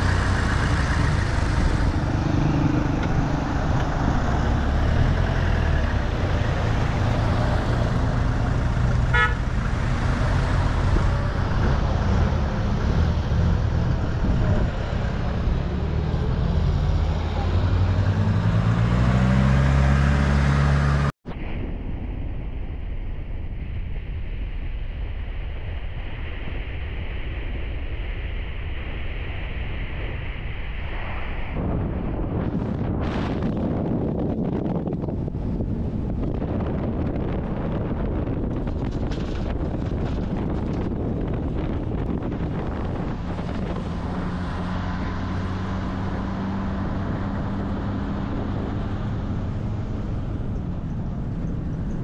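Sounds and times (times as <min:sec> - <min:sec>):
truck engine running: 0:00.0 - 0:16.4
wind and road noise: 0:00.0 - 0:52.0
short horn toot: 0:09.1 - 0:09.4.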